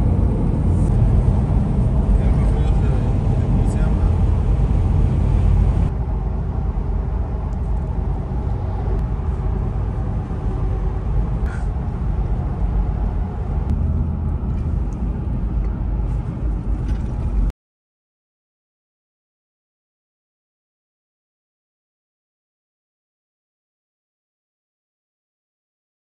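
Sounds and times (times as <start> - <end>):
road and engine rumble in car: 0.0 - 17.5.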